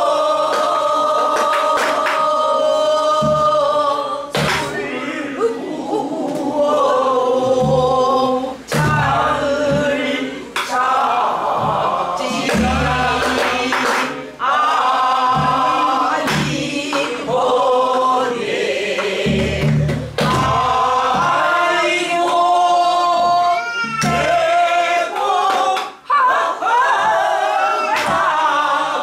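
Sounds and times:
group singing folk song: 0.0 - 29.0
barrel drum strokes: 3.1 - 4.9, 7.4 - 10.8, 11.4 - 13.8, 15.2 - 17.4, 19.0 - 21.8.

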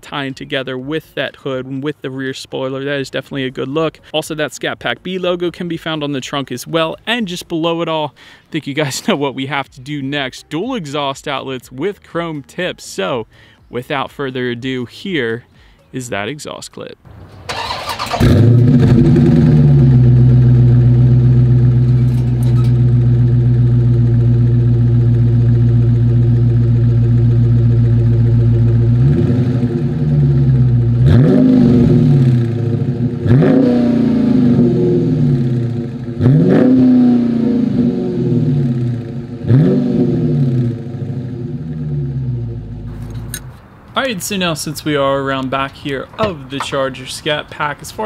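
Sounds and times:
engine revving: 17.1 - 43.3
car engine starting and idling: 17.1 - 46.9.

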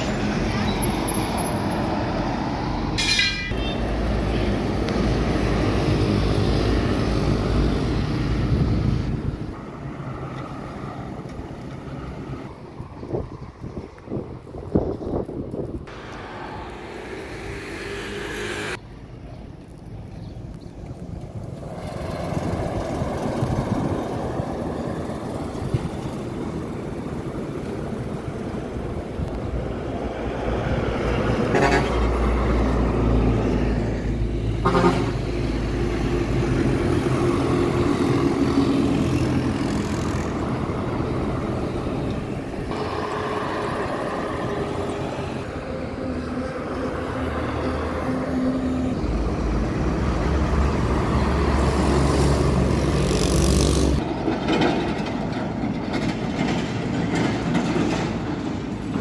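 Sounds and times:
buses and truck rumbling past: 0.0 - 59.0
motorbikes passing: 15.8 - 18.8, 21.6 - 54.2.

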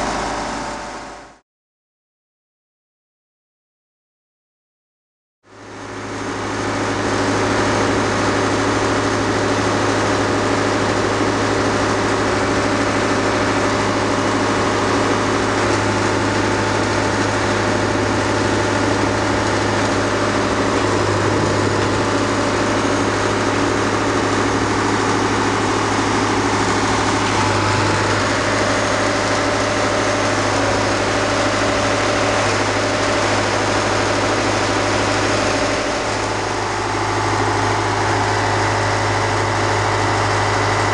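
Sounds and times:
large engine idling: 0.0 - 1.4, 5.5 - 40.9.

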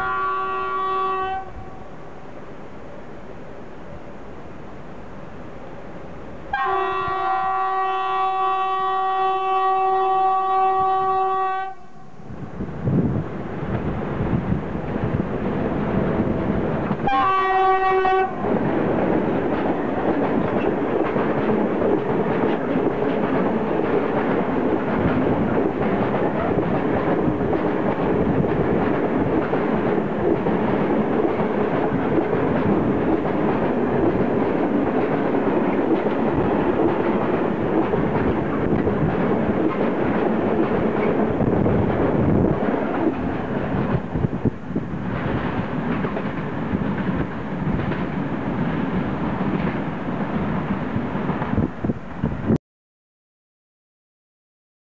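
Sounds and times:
locomotive horn blast: 0.0 - 1.9, 6.5 - 12.1, 17.0 - 18.4
freight wagons rumbling on rails: 12.3 - 52.6.

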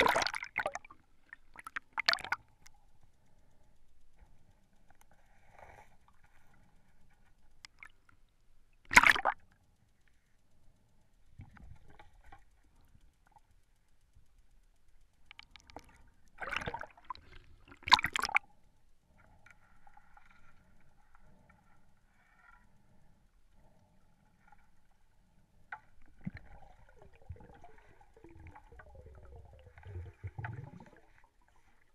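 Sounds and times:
underwater bubbling bursts: 0.0 - 2.6, 8.9 - 9.4, 15.3 - 18.4, 26.0 - 31.9
low water rumble: 0.0 - 31.9.

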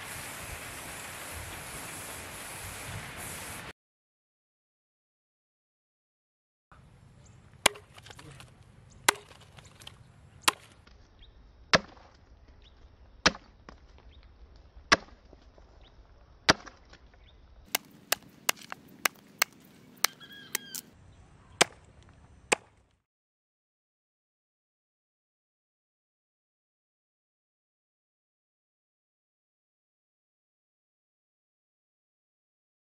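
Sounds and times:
machete chopping into wood: 7.6 - 8.4, 9.1 - 10.8, 11.7 - 12.2, 13.2 - 13.8, 14.9 - 15.2, 16.5 - 17.0, 17.7 - 20.8, 22.5 - 22.7.

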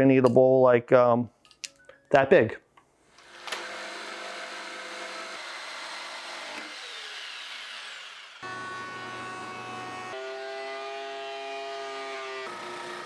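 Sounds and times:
power tool running: 3.1 - 13.0
jigsaw cutting wood: 3.2 - 13.0.

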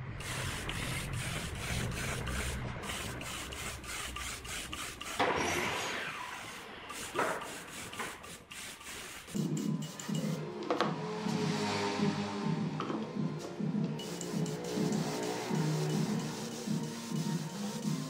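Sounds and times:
spray gun hissing and sputtering: 0.0 - 5.3, 6.3 - 10.3, 14.0 - 18.0.

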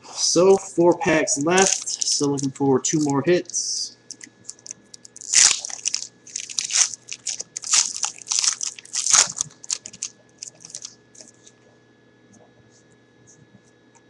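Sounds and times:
foil wrapper crinkling: 1.0 - 11.4.

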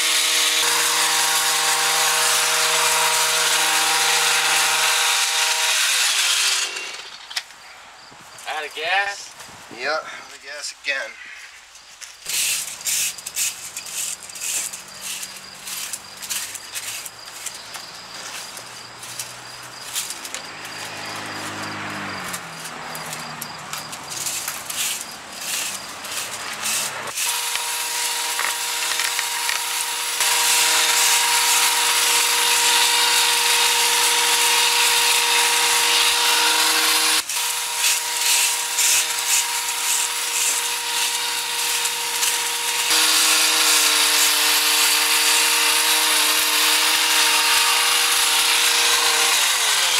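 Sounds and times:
hedge trimmer engine running: 0.0 - 7.3, 19.0 - 49.9.

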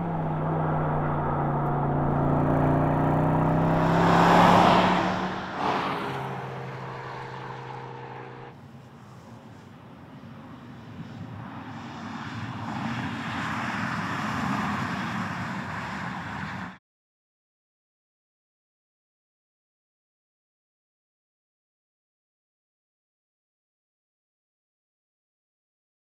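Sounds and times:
car passing at speed: 0.0 - 8.6, 10.8 - 16.8.

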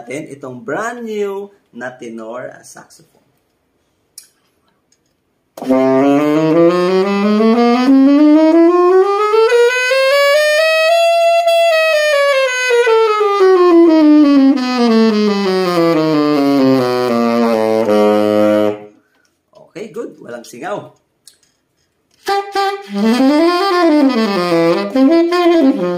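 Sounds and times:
saxophone playing a scale: 5.6 - 19.0, 22.2 - 25.9.

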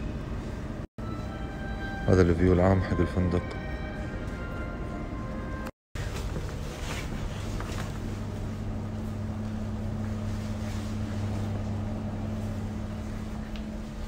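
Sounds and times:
ventilation hum and rushing air: 5.3 - 14.0.

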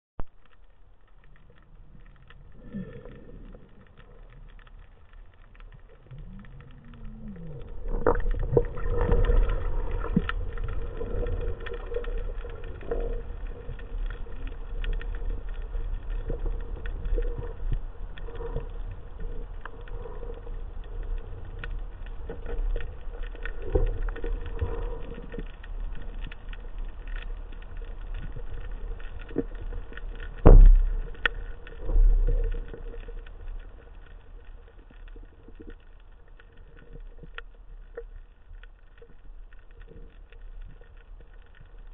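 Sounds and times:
clicks and crackles: 0.2 - 41.9
underwater low rumble: 0.2 - 41.9.

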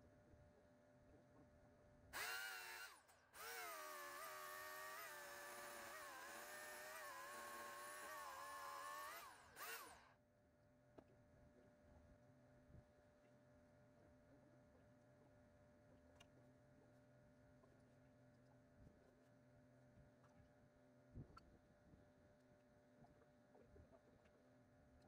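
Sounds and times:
electric chainsaw motor whining: 2.2 - 10.1.

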